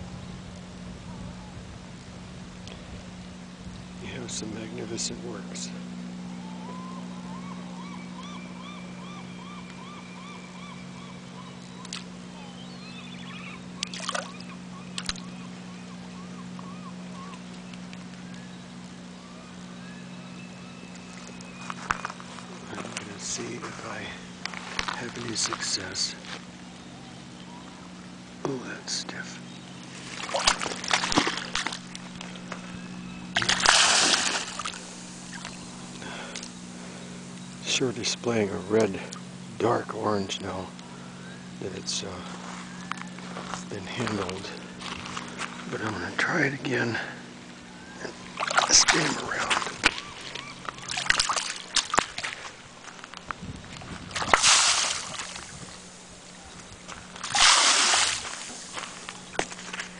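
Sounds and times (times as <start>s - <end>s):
light water clicks: 11.6s - 12.1s, 13.8s - 15.3s, 48.4s - 55.4s
shallow water splashing: 13.4s - 15.3s, 29.8s - 32.7s, 33.3s - 36.5s, 48.0s - 52.9s, 53.8s - 59.8s
squid splashing in water: 30.1s - 31.8s, 33.4s - 35.4s, 50.8s - 52.4s, 54.1s - 55.5s, 57.2s - 58.6s.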